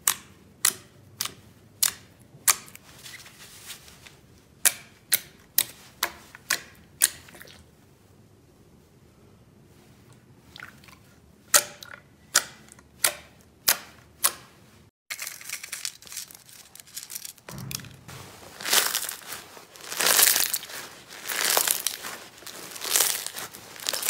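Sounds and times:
crunchy slime crackling: 18.5s - 24.0s.

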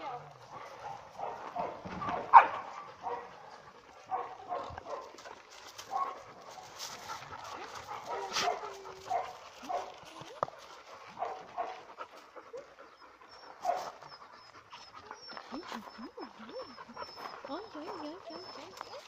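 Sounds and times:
dogs panting: 0.1s - 19.0s
dogs whining softly: 12.0s - 19.0s.

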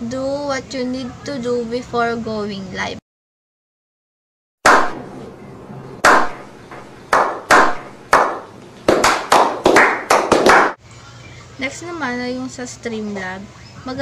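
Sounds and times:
slow hand clapping: 7.1s - 10.8s.

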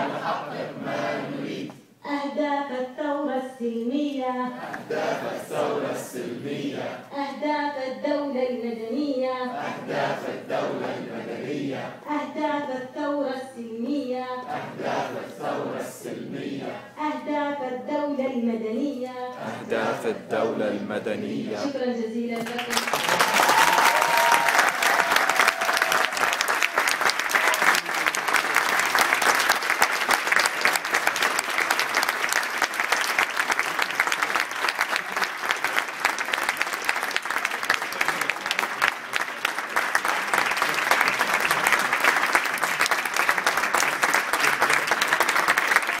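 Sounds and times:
audience applauding: 22.4s - 46.0s.

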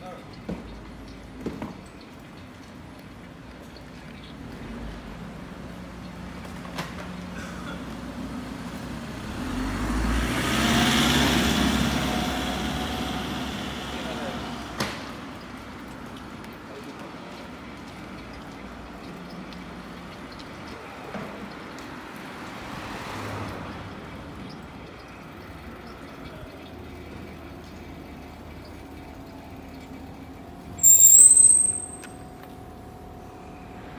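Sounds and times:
street noise: 0.0s - 33.9s
loud high-pitched squeal: 30.8s - 32.2s.

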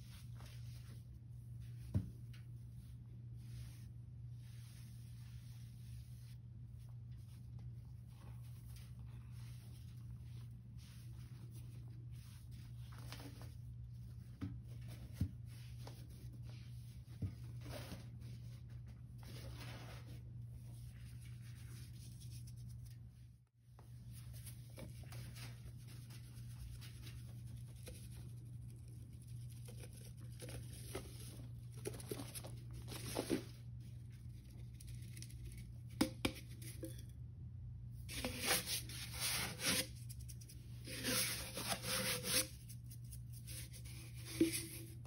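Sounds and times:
hands rubbing sponges: 0.0s - 23.1s, 38.0s - 45.0s.

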